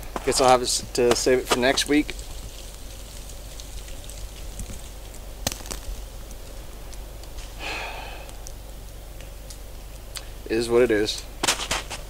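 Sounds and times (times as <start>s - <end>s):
person sniffing: 7.6s - 8.3s.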